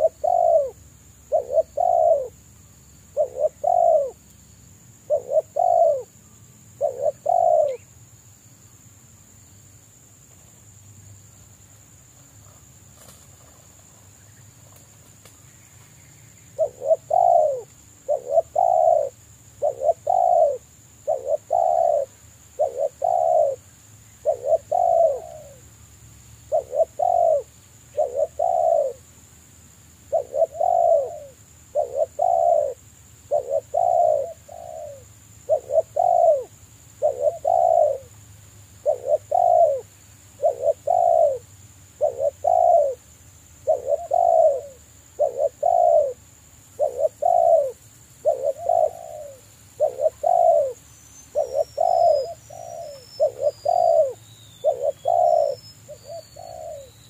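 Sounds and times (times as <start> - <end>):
dove cooing: 0.0 - 2.4, 3.1 - 4.2, 5.1 - 6.2, 6.8 - 7.8, 16.5 - 25.6, 26.5 - 29.1, 30.1 - 38.2, 38.8 - 43.0, 43.6 - 57.0.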